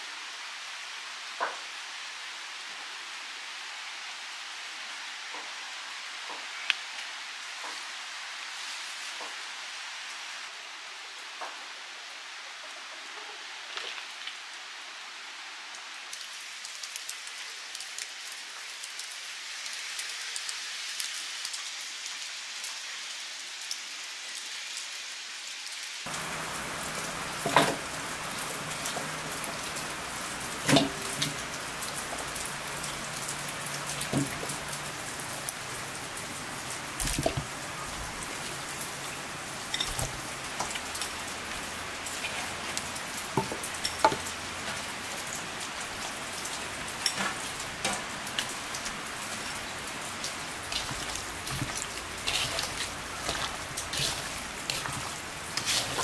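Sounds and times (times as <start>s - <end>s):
rain pattering: 0.0s - 56.0s
utensils clinking in metal bowls: 39.7s - 40.8s, 50.6s - 56.0s.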